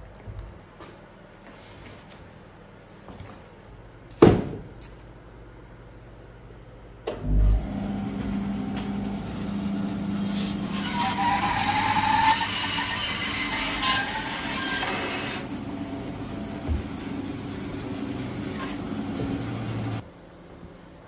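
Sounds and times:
bandsaw motor humming: 7.2s - 20.0s
saw blade cutting log: 8.7s - 20.0s.

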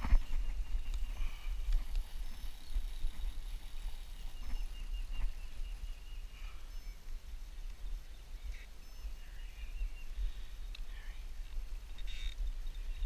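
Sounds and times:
wind buffeting microphone: 0.0s - 6.0s
birds chirping faintly: 0.0s - 13.0s.

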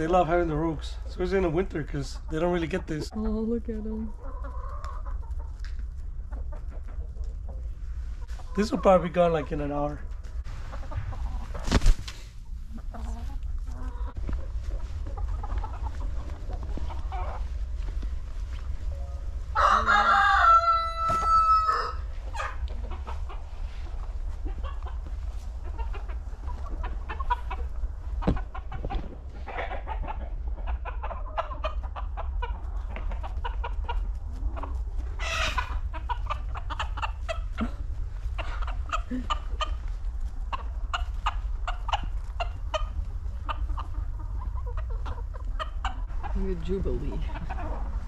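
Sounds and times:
hens clucking: 0.0s - 48.0s
hens pecking: 0.2s - 48.0s
loud drawn-out crowing call: 19.5s - 22.1s.

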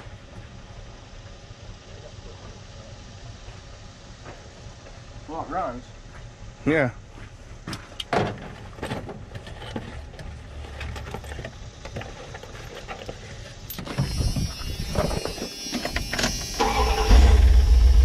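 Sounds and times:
truck engine running rough: 14.0s - 18.0s
loud low rumble: 16.5s - 18.0s.

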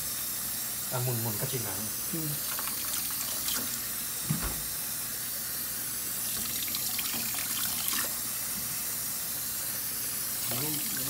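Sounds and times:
tap water running into steel sink: 2.4s - 4.8s, 6.2s - 8.7s, 10.3s - 11.0s.

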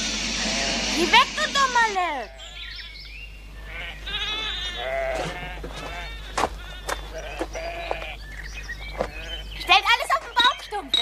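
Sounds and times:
sheep bleating: 3.6s - 8.2s.

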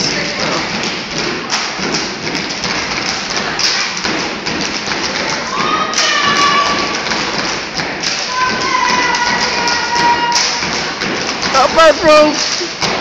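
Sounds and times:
stomping and clapping: 0.0s - 13.0s
high yell: 5.5s - 7.0s, 8.3s - 10.7s.

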